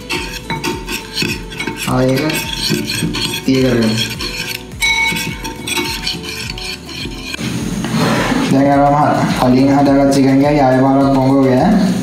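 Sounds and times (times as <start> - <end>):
metal spoon clinking in bowl: 0.0 - 7.4.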